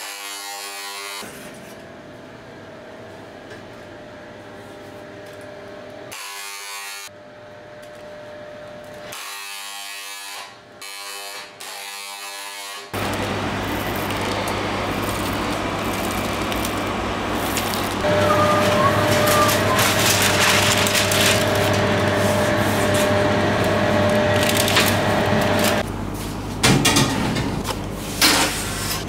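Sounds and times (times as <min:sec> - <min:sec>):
electric spray gun buzzing: 0:12.9 - 0:25.8.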